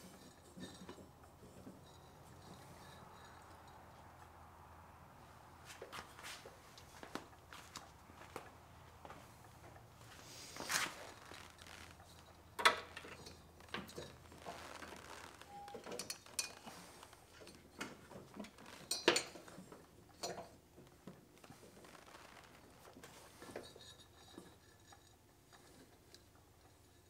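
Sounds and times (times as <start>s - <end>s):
metal clinks and knocks: 0.0s - 4.4s, 10.9s - 14.8s, 15.4s - 21.1s, 22.8s - 27.0s.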